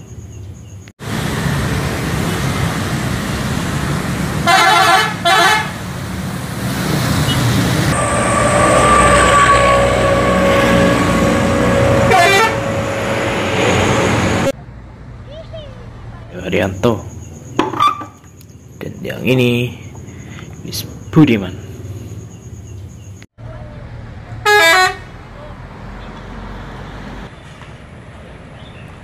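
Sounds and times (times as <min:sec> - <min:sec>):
bus engine: 0:00.0 - 0:29.0
road traffic noise: 0:00.0 - 0:29.0
horn blasts: 0:04.4 - 0:05.8, 0:07.3 - 0:14.5, 0:24.4 - 0:25.1.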